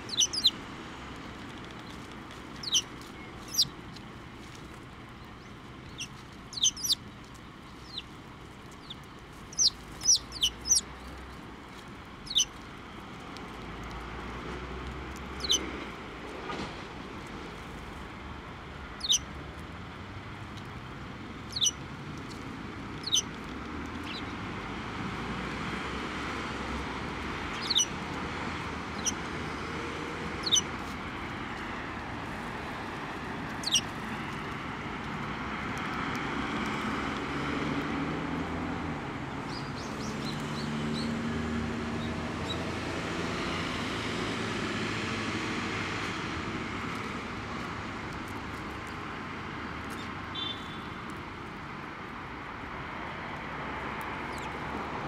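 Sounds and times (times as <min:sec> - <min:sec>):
sparrows chirping: 0:00.0 - 0:00.6, 0:01.7 - 0:11.4, 0:12.2 - 0:12.7, 0:15.3 - 0:15.8, 0:18.8 - 0:19.4, 0:21.4 - 0:24.4, 0:26.8 - 0:30.9, 0:32.5 - 0:34.3, 0:39.4 - 0:41.2, 0:49.8 - 0:50.8, 0:54.2 - 0:54.6
distant traffic noise: 0:00.0 - 0:55.0.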